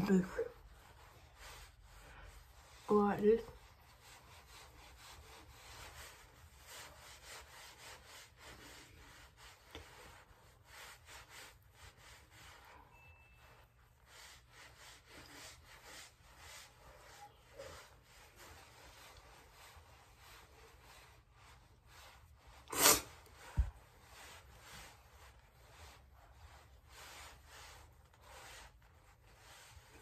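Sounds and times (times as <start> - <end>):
fingertips rubbing cream on skin: 0.1 - 30.0.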